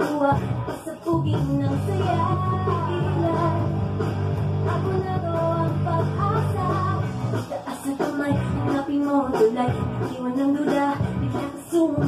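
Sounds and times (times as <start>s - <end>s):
electric bass guitar: 0.0s - 7.5s, 8.3s - 8.8s, 9.7s - 10.1s, 11.0s - 12.0s
recorded rock song with singer: 0.0s - 12.0s.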